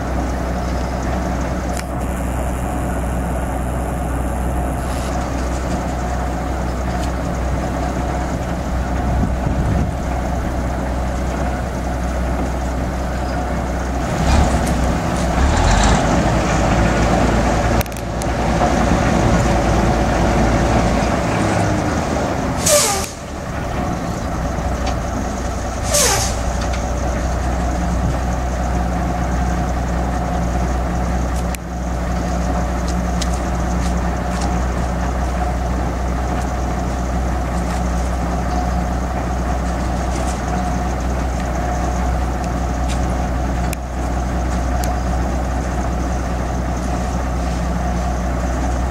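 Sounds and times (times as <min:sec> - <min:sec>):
crane engine running: 0:00.0 - 0:48.9
short sharp air hisses: 0:22.6 - 0:23.3, 0:25.8 - 0:26.6.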